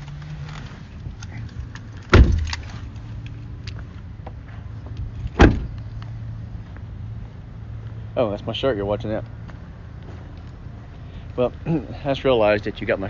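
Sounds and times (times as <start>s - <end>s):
car doors shutting: 2.0s - 2.8s, 5.3s - 5.8s.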